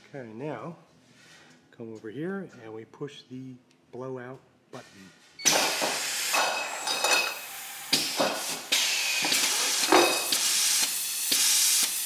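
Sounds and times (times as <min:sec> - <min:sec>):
gas hissing in surges: 0:05.4 - 0:12.0.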